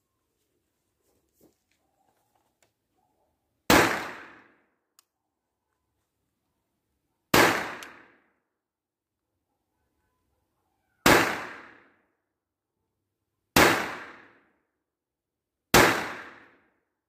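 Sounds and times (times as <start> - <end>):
pistol shots: 3.7 - 4.6, 7.3 - 8.2, 11.0 - 11.9, 13.6 - 14.4, 15.7 - 16.6.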